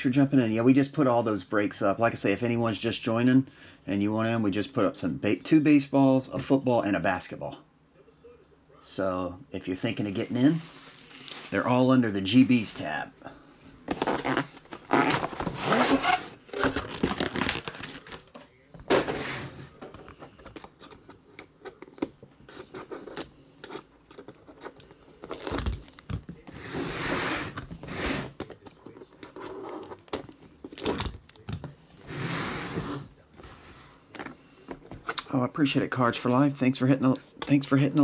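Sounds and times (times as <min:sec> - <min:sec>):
plastic wrap tearing and crinkling: 0:10.8 - 0:11.7, 0:13.9 - 0:18.4, 0:22.9 - 0:26.2.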